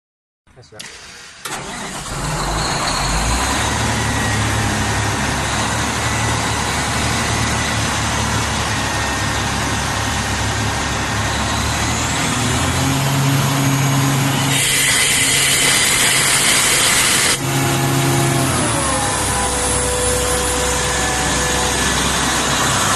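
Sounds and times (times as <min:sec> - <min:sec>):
compressor engine running: 0:00.8 - 0:22.9
loud high hiss: 0:14.4 - 0:18.4.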